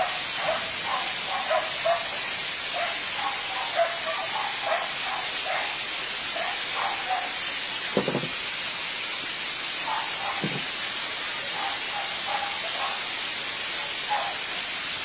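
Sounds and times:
dog barking: 0:00.0 - 0:07.4, 0:09.8 - 0:10.6, 0:11.5 - 0:13.1, 0:14.1 - 0:14.4
hiss of ashfall: 0:00.0 - 0:15.0.

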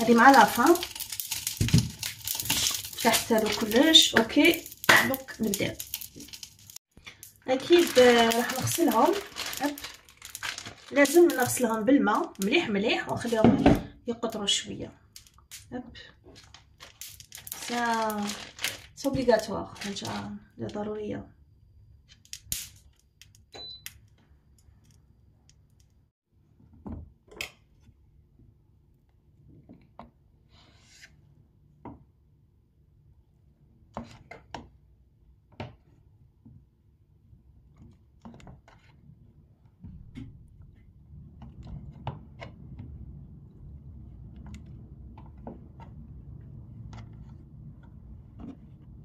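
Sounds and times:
plastic food package rustling: 0:00.0 - 0:12.6, 0:16.3 - 0:20.3.

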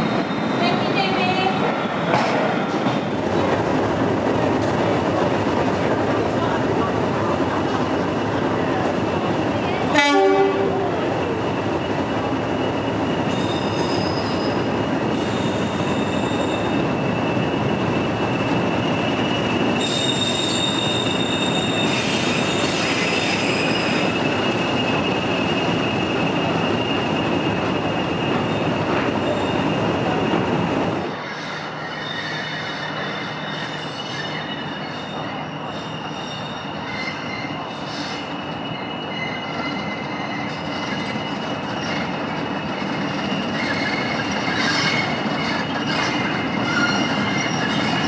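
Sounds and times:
train rumbling past: 0:00.0 - 0:48.0
train horn blast: 0:09.9 - 0:10.8
high-pitched wheel squeal: 0:13.3 - 0:16.8, 0:19.2 - 0:24.3, 0:31.2 - 0:48.0.

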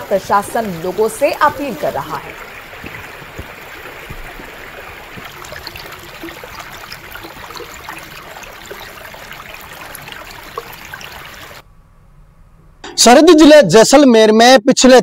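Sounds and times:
floodwater rushing: 0:00.0 - 0:11.6
small water splashes: 0:00.0 - 0:11.6.

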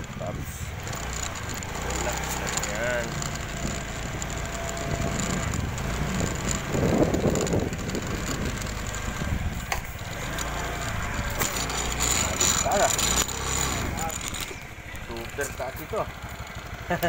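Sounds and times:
motorcycle engine running: 0:00.0 - 0:17.0
wind on microphone: 0:03.6 - 0:10.2.

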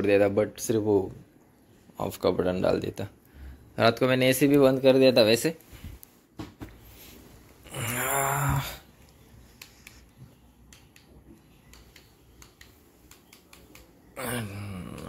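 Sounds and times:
remote control buttons clicking: 0:09.6 - 0:14.1.

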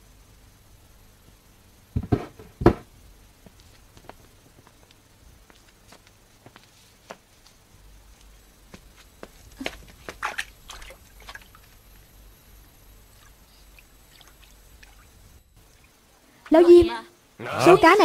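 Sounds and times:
water splashing and dripping: 0:10.0 - 0:11.8, 0:13.1 - 0:16.0.

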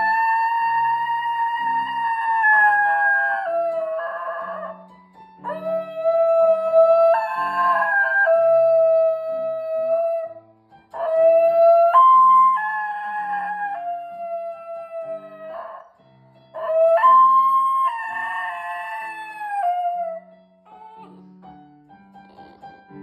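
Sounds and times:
dog howling: 0:00.0 - 0:10.4, 0:11.0 - 0:15.8, 0:16.6 - 0:21.2
short piano notes: 0:20.3 - 0:23.0.

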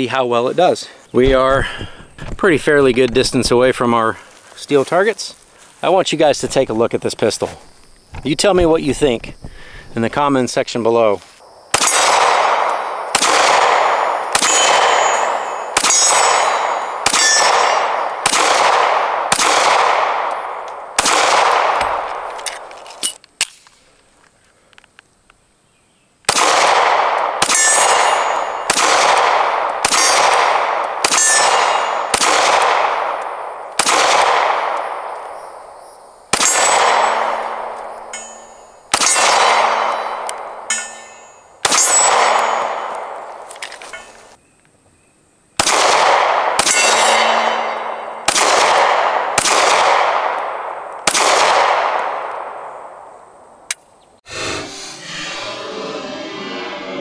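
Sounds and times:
pistol shots: 0:11.7 - 0:22.6, 0:26.3 - 0:35.3, 0:36.3 - 0:37.8, 0:38.9 - 0:40.7, 0:41.6 - 0:43.4, 0:45.6 - 0:53.0
steel target clanging: 0:14.4 - 0:18.0, 0:27.4 - 0:28.7, 0:31.1 - 0:32.1, 0:38.0 - 0:42.9, 0:46.6 - 0:48.1.

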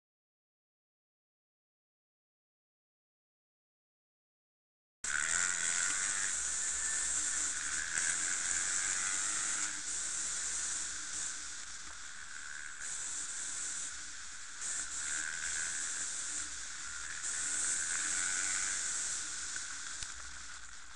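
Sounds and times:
dirt bike engine: 0:05.0 - 0:20.9
wind hiss on microphone: 0:05.1 - 0:20.9.

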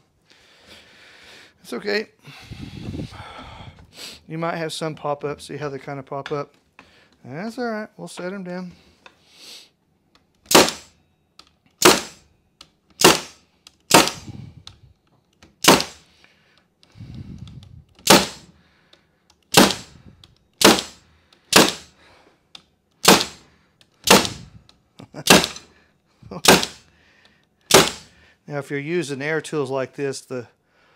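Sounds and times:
air stapler shots into wood: 0:10.4 - 0:11.0, 0:11.8 - 0:12.3, 0:12.9 - 0:14.5, 0:15.5 - 0:16.1, 0:17.1 - 0:18.5, 0:19.4 - 0:22.0, 0:23.0 - 0:24.6, 0:25.2 - 0:25.7, 0:26.3 - 0:26.9, 0:27.7 - 0:28.2.

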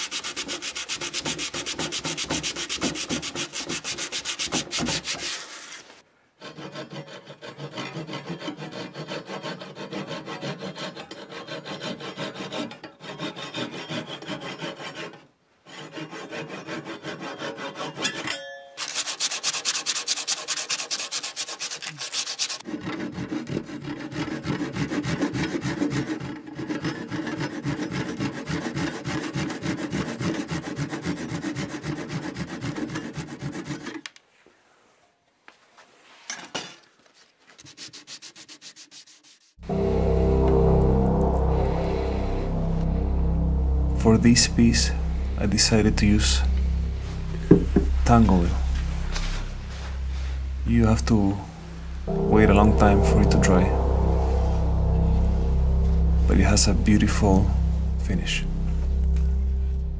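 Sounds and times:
hand saw cutting wood: 0:00.0 - 0:18.2, 0:18.8 - 0:34.1
brief ringing note: 0:39.6 - 0:59.9.

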